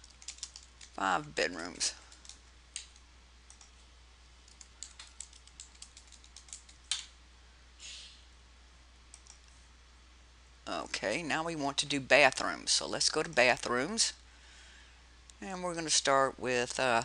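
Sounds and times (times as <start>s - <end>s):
keyboard typing: 0.0s - 1.0s, 2.1s - 3.7s, 4.4s - 7.1s.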